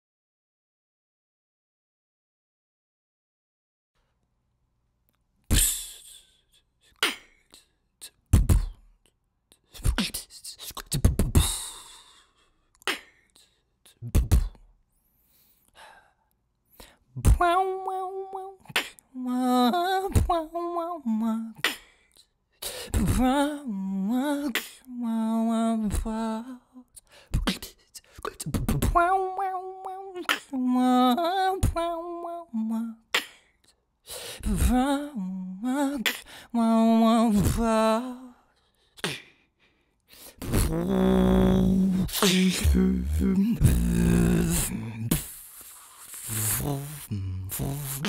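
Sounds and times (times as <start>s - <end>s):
beatboxing mouth percussion: 5.5s - 12.2s, 12.8s - 14.7s, 17.2s - 17.4s, 27.3s - 29.1s, 30.2s - 30.5s, 39.0s - 39.3s, 40.2s - 48.0s.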